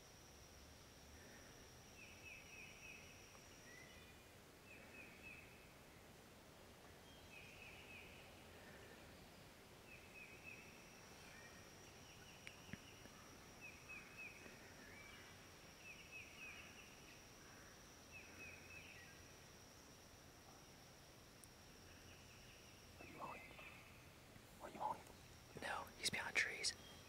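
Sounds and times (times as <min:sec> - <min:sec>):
high insect buzz: 0:00.0 - 0:05.7, 0:07.1 - 0:27.0
small tick: 0:12.4 - 0:13.1.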